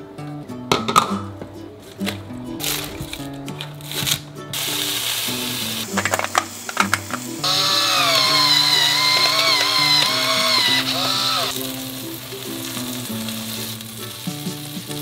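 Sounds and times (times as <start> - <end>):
background music: 0.0 - 15.0
food sizzling on hot pan: 2.6 - 15.0
electric grinder whirring: 4.9 - 11.6.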